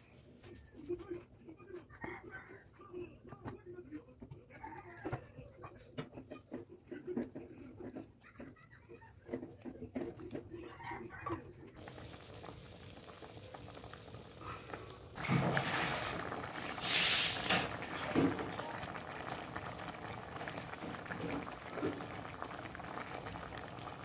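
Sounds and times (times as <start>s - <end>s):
stew sizzling in a frying pan: 11.8s - 24.0s
short loud hiss: 16.8s - 17.7s.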